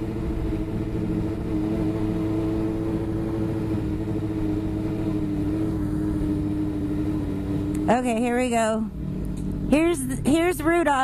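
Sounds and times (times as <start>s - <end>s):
wind rumbling on microphone: 0.0s - 8.2s
motorbike engine droning: 0.0s - 11.0s.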